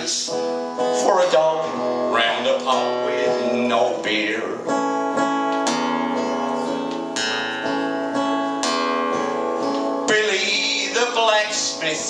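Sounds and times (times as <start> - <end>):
man singing: 0.0 - 4.8, 10.0 - 12.0
acoustic guitar strumming chords: 0.0 - 12.0.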